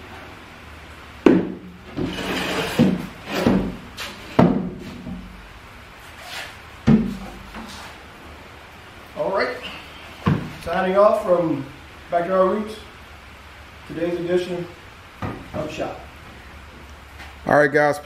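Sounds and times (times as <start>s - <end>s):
wooden workbench knocks: 1.2s - 2.2s, 6.8s - 7.2s
caster wheels rolling and scraping: 1.8s - 4.4s.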